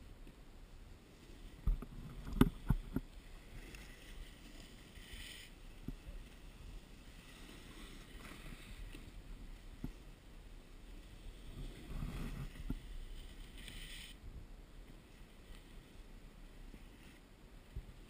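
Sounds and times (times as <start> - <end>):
faint steady hiss: 0.0 - 18.0
snowboard scraping over snow: 1.0 - 14.2.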